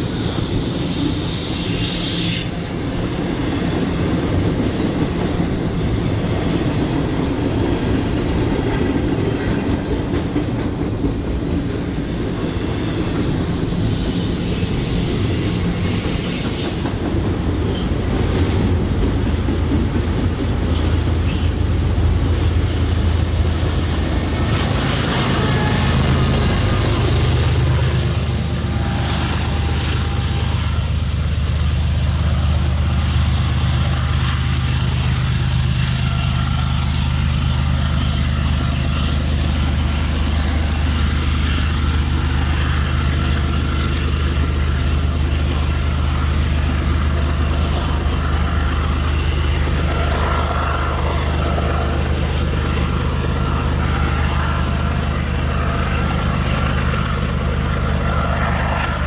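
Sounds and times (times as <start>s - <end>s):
freight train rumbling past: 0.0s - 59.0s.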